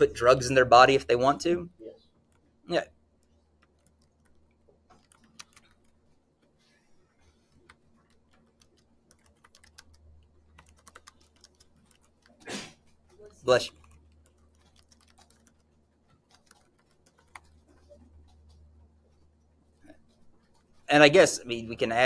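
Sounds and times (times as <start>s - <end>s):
typing on computer keyboard: 3.2s - 6.0s, 7.5s - 12.4s, 13.6s - 17.9s.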